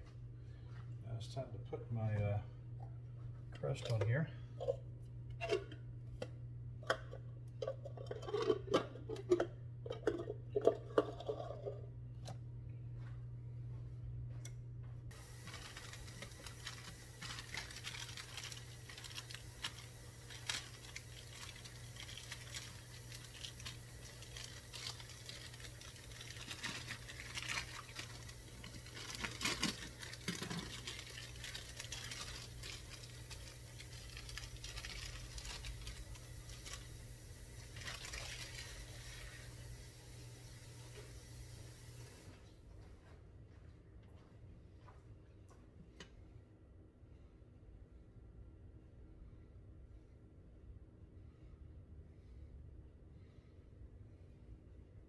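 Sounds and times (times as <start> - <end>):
steady low hum: 0.0 - 55.0
wrapping rustling and crinkling: 15.1 - 39.6.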